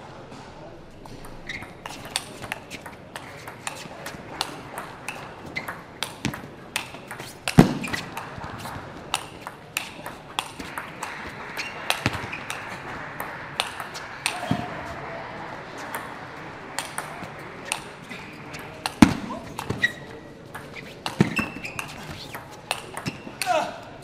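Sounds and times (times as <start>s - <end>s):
crowd voices: 0.0s - 24.0s
table tennis ball clicking: 1.2s - 14.4s, 18.6s - 23.2s.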